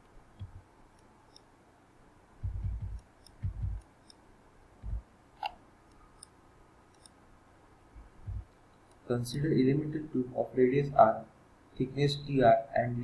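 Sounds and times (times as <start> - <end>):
faint computer mouse clicks: 0.4 - 1.5, 2.8 - 4.2, 5.4 - 7.2
dull low thumps: 2.4 - 3.8, 4.8 - 5.1, 8.0 - 8.5.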